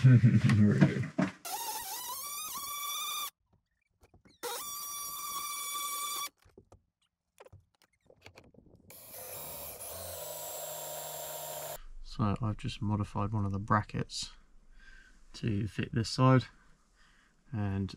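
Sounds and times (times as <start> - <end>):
drill bit cutting metal: 1.5 - 3.3, 8.9 - 11.8
cordless drill whining: 1.5 - 3.4, 4.4 - 6.3, 8.9 - 11.8.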